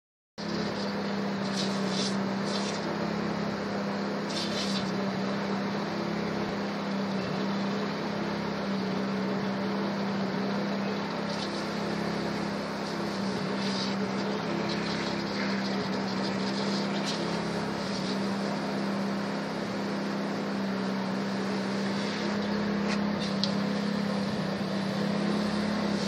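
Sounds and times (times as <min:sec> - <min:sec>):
sprayer pump humming: 0:00.4 - 0:26.0.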